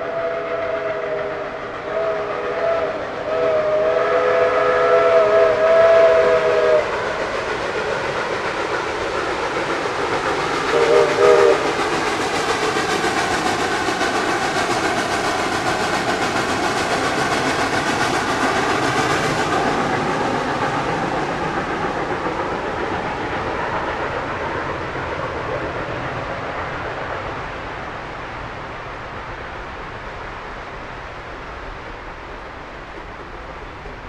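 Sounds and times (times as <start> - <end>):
steam whistle: 0.0 - 7.0, 10.7 - 11.8
high steam hiss: 0.0 - 34.0
train running noise: 0.0 - 34.0.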